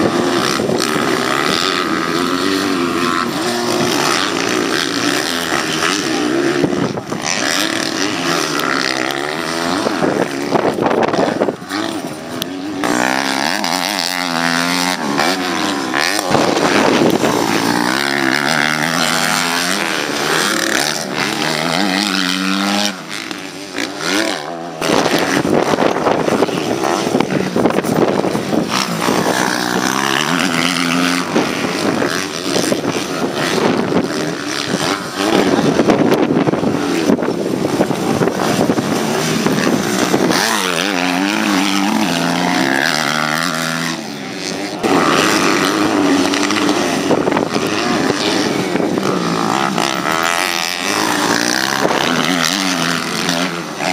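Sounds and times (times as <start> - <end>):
motocross bike engines revving: 0.0 - 53.9.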